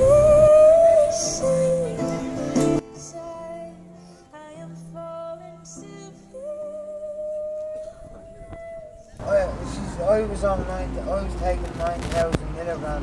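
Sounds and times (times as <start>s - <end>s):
woman singing through amplifier: 0.0s - 9.2s.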